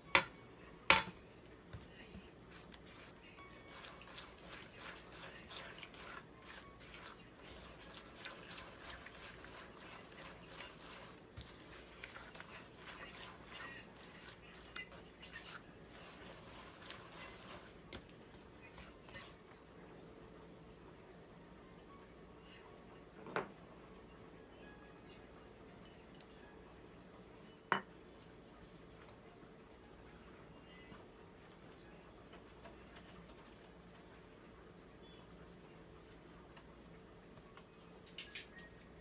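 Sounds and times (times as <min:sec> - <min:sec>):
spatula scraping mixing bowl: 0:02.5 - 0:19.6, 0:30.0 - 0:36.7.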